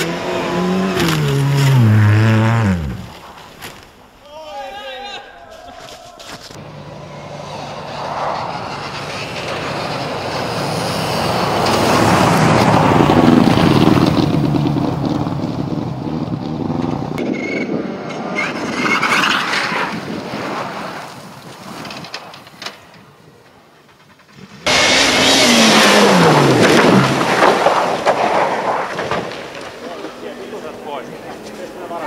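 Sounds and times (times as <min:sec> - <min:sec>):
rally car engine passing at high revs: 0:00.0 - 0:03.2, 0:06.7 - 0:17.2, 0:24.3 - 0:32.0
second car engine: 0:00.0 - 0:03.2, 0:06.6 - 0:18.2, 0:24.3 - 0:29.0.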